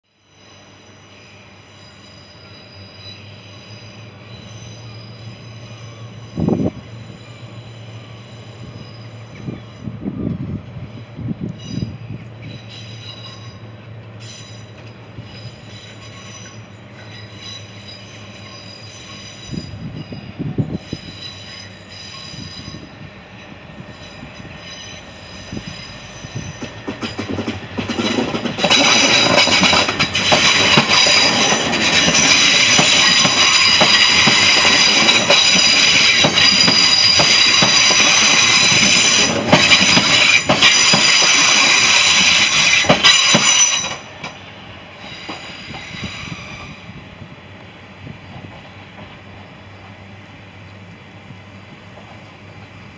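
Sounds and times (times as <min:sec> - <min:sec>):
train wheels squealing: 0:00.1 - 0:52.9
wheels clicking over rail joints: 0:26.5 - 0:44.4.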